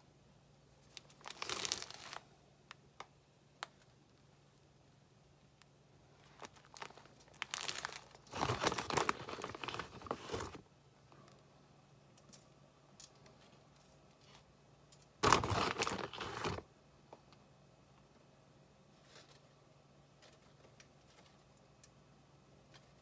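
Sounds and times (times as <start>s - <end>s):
plastic bag crinkling: 0.8s - 2.3s, 6.2s - 10.6s, 15.2s - 16.6s.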